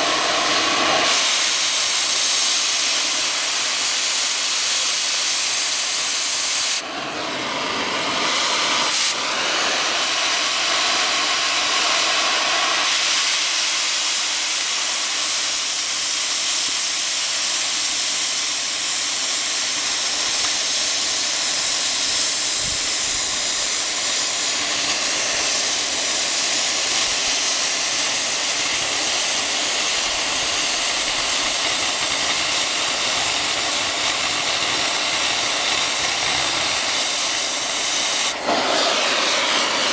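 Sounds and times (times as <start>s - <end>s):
cutting torch hissing: 0.0s - 39.9s.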